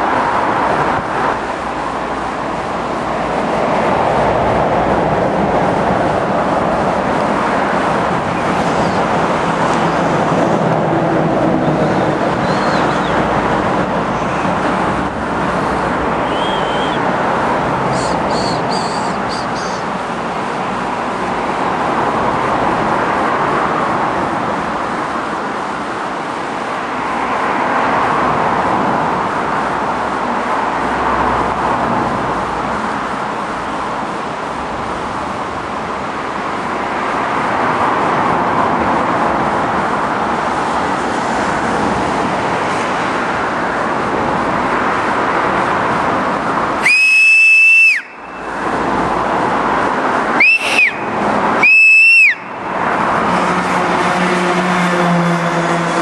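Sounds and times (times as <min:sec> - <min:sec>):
river rushing over rocks: 0:00.0 - 0:53.4
sharp whistle: 0:12.4 - 0:13.2, 0:16.2 - 0:17.0, 0:17.9 - 0:19.8, 0:46.8 - 0:48.5, 0:50.4 - 0:52.6.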